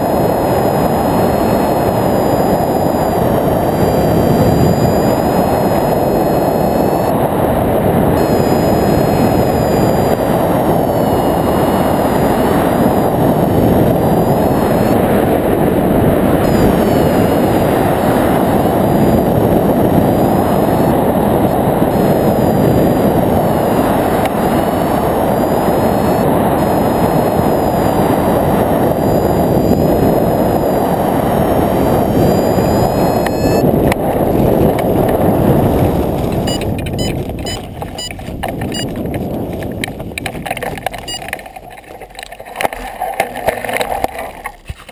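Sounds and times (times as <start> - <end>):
wind rumbling on microphone: 0.0 - 44.9.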